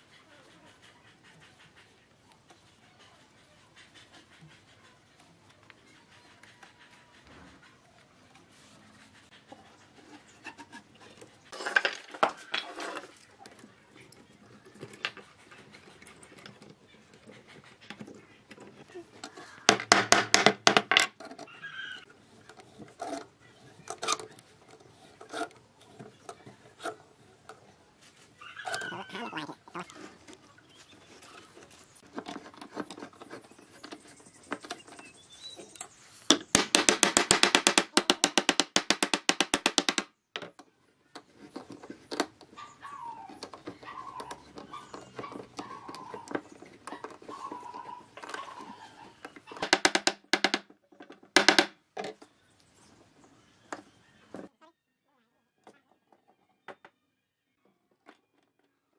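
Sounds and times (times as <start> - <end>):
wooden mallet knocking on wood: 36.6 - 40.1, 49.6 - 50.6, 51.4 - 51.7.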